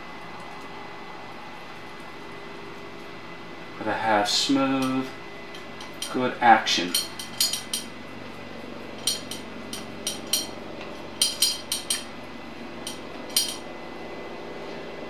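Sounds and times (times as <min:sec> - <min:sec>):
steady low hum: 0:00.0 - 0:15.0
tool tapping on metal housing: 0:11.2 - 0:12.1, 0:12.8 - 0:13.6.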